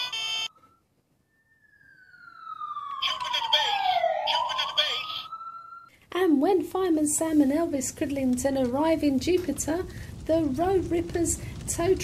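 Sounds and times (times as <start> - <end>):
fire engine siren wailing: 0.0 - 6.0.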